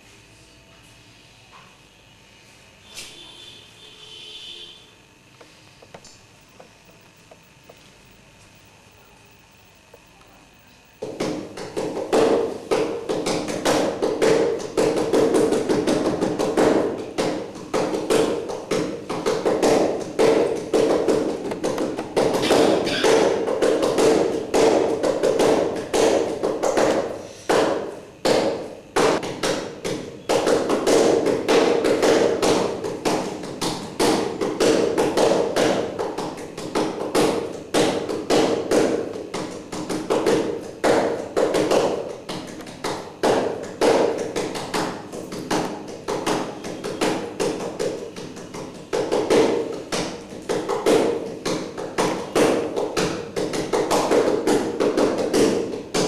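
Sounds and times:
rapid irregular tapping: 5.3s - 56.0s.

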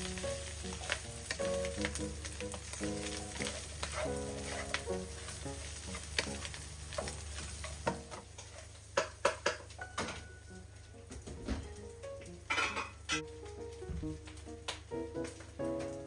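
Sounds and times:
background music with held notes: 0.0s - 7.0s, 9.8s - 16.0s
food sizzling in a wok: 0.0s - 14.6s
wooden spatula scraping a pan: 0.2s - 9.1s.

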